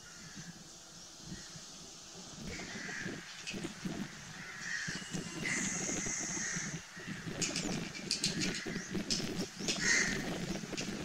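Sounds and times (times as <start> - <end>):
crow cawing: 0.0 - 0.5, 2.5 - 3.3, 4.3 - 7.4, 9.7 - 10.3.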